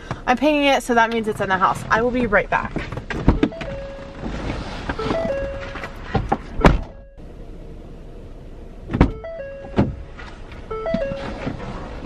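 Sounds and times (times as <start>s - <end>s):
car door knocks and thumps: 2.7s - 7.0s, 8.9s - 11.6s
electronic stepped chime: 5.0s - 6.0s.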